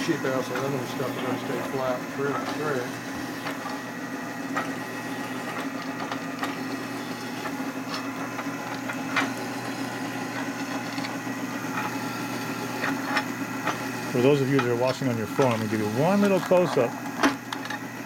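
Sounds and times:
drill press running: 0.0 - 18.0
cutter clicking and scraping metal: 14.5 - 17.8.

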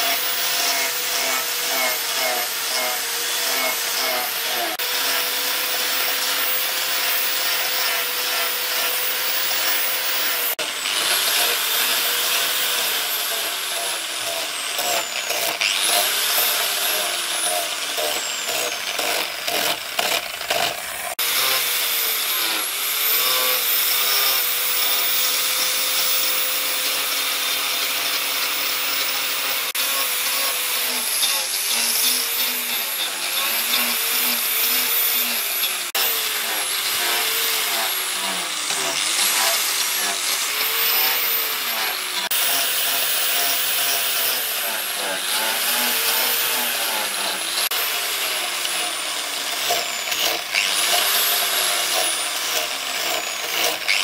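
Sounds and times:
angle grinder sanding wood: 0.0 - 54.0.

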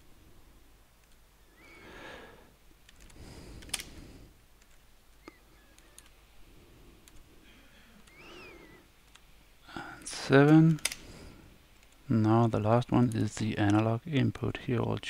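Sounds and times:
low background noise: 0.0 - 15.0
computer mouse clicks: 2.8 - 4.0, 4.6 - 6.2, 7.0 - 7.3, 9.0 - 9.3, 10.5 - 11.0.

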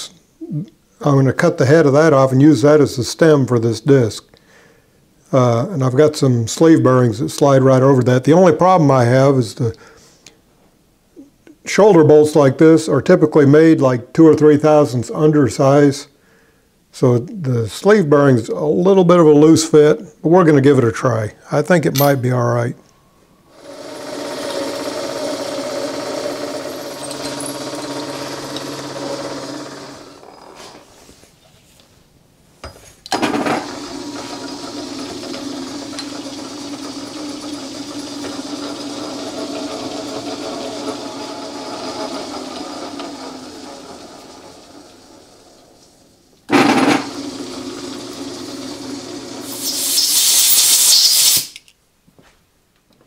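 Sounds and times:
drill boring into steel: 23.5 - 30.7, 33.4 - 45.6, 46.5 - 51.6
metal lathe running: 23.6 - 30.6, 33.3 - 45.6, 46.5 - 49.8
loud high hiss: 49.4 - 51.6.

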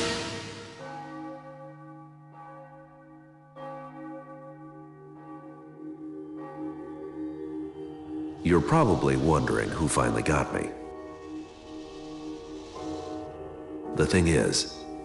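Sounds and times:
church bell tolling: 0.0 - 10.9.

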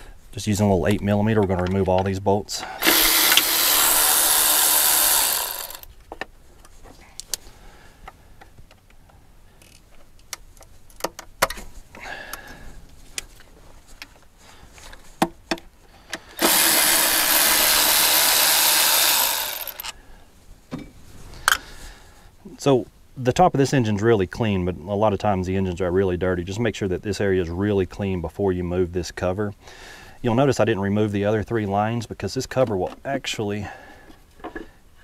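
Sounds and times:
cordless electric ratchet spinning: 2.8 - 5.9, 16.4 - 19.9
tools and bolts clicking: 2.8 - 5.9, 16.4 - 20.0.

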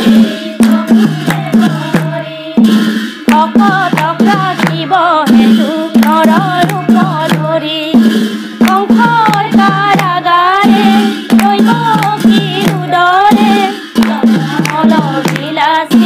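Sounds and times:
drum beat: 0.0 - 16.0
women singing together: 0.0 - 16.0
hand clapping: 0.6 - 2.2, 3.2 - 7.5, 8.6 - 10.2, 11.0 - 15.6.

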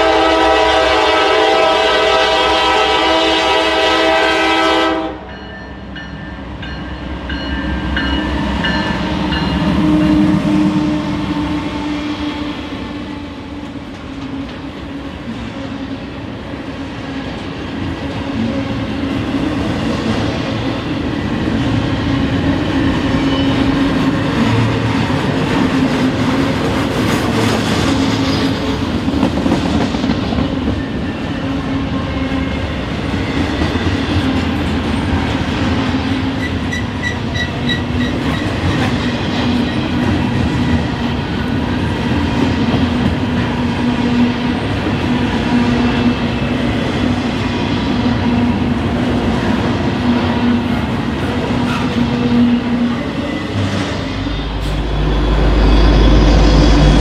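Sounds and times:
train horn: 0.0 - 5.4, 9.0 - 14.7
train wheels clacking on rails: 19.1 - 52.8.

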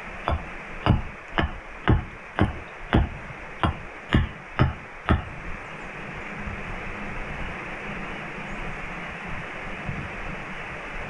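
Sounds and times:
light rain hiss: 0.0 - 11.0
axe chopping wood: 0.3 - 5.4.

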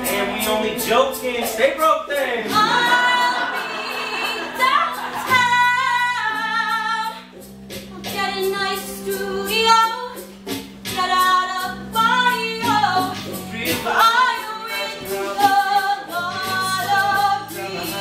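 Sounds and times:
group singing show tune: 2.3 - 7.3, 12.2 - 18.0.

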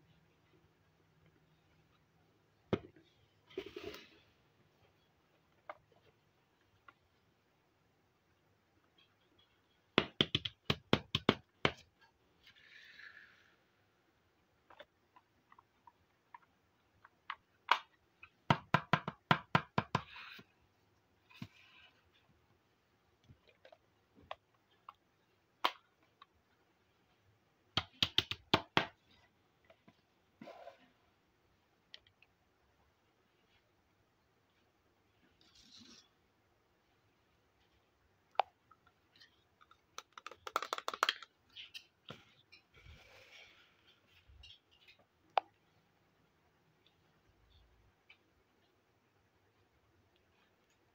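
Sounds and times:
plastic toy clicks: 40.0 - 41.3.

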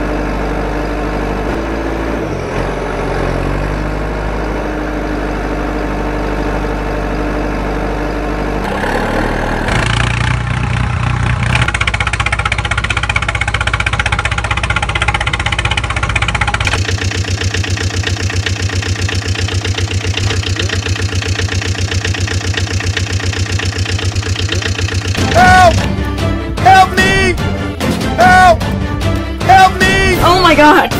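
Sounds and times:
motor vehicle engines running: 0.0 - 30.9
engine chugging with fast beat: 9.7 - 30.9.

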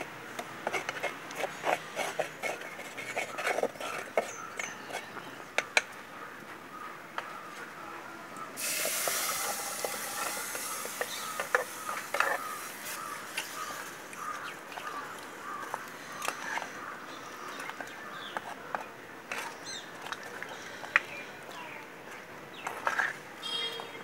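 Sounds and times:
ladle stirring in clay pot: 0.6 - 5.2, 8.6 - 16.8
birds chirping: 2.4 - 8.6, 9.4 - 24.0
liquid splashing into a pot: 8.6 - 11.1.

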